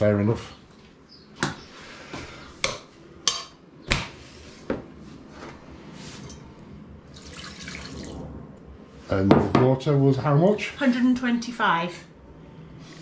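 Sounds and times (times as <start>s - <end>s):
utensils and saucepan knocking: 2.6s - 3.6s.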